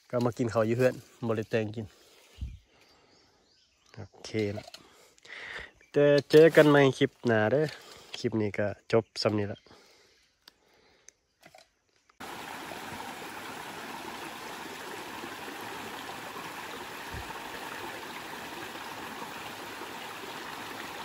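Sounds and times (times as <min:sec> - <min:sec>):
stream splashing over stones: 0:12.2 - 0:21.0.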